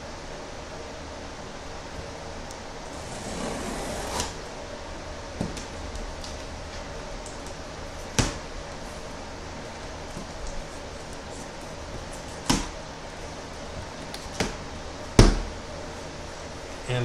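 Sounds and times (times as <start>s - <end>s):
knife slitting packing tape: 3.0s - 4.4s.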